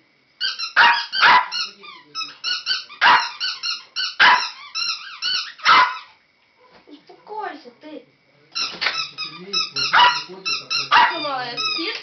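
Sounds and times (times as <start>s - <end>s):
dog high-pitched squeaks: 0.4s - 6.2s, 8.6s - 12.0s
dog barking: 0.8s - 1.6s, 3.0s - 3.4s, 4.2s - 4.6s, 5.6s - 6.1s, 9.8s - 11.3s.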